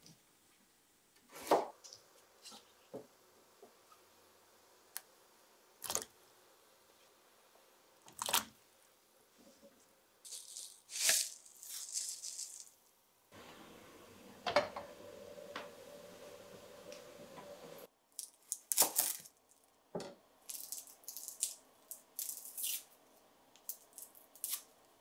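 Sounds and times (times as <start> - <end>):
kitchen appliance humming: 13.3 - 17.9.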